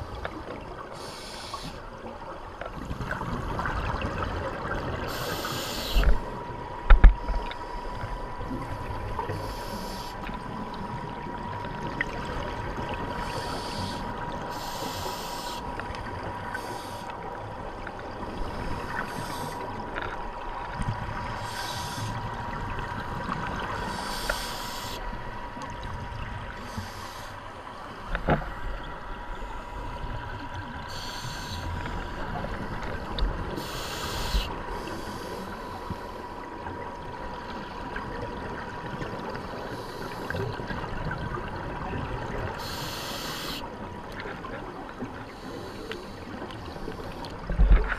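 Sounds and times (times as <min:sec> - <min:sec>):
regulator inhale hiss: 0:00.9 - 0:01.8, 0:05.1 - 0:06.2, 0:09.3 - 0:10.3, 0:13.2 - 0:15.7, 0:16.4 - 0:17.1, 0:18.4 - 0:19.6, 0:21.4 - 0:22.3, 0:23.8 - 0:25.0, 0:26.6 - 0:27.4, 0:30.9 - 0:32.3, 0:33.5 - 0:36.4, 0:39.5 - 0:40.5, 0:42.6 - 0:43.7, 0:45.3 - 0:47.4.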